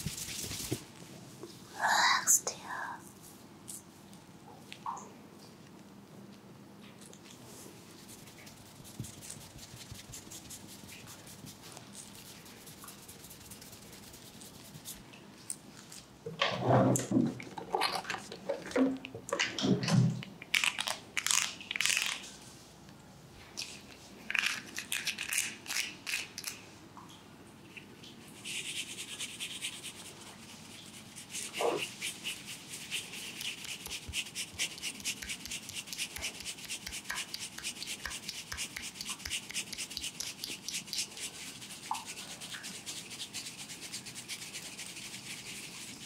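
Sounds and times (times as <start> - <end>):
brush scrubbing through hair: 0.0 - 0.8, 7.9 - 15.0, 28.4 - 46.0
crackling rubs: 28.4 - 46.0.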